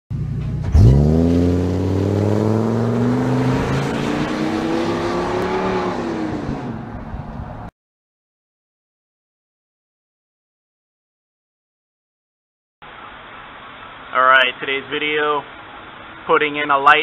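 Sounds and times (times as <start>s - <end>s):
van engine revving: 0.1s - 7.3s.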